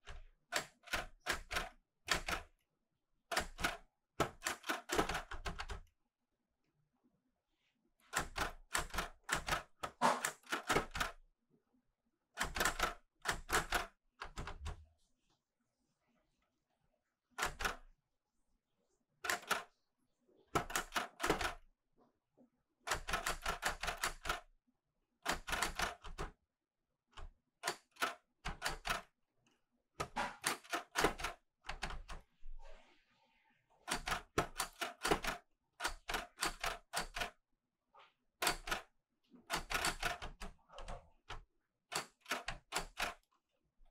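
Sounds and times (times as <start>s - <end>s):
typewriter key strikes: 19.3s - 19.6s, 20.6s - 21.6s, 25.3s - 26.3s, 27.6s - 29.0s, 30.0s - 32.1s, 33.9s - 37.3s, 38.4s - 38.8s, 39.5s - 40.5s, 41.9s - 43.2s.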